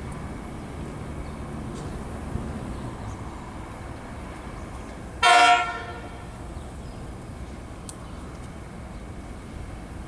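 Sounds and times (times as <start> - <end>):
diesel locomotive engine drone: 0.0 - 10.0.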